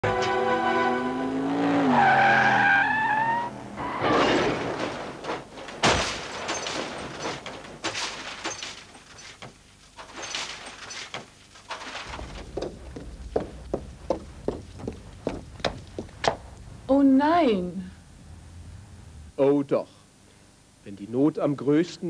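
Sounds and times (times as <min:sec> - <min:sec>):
falling debris clattering: 0:03.9 - 0:16.9
sharp crash: 0:04.0 - 0:09.4, 0:11.8 - 0:16.9
rushing noise: 0:12.1 - 0:17.0.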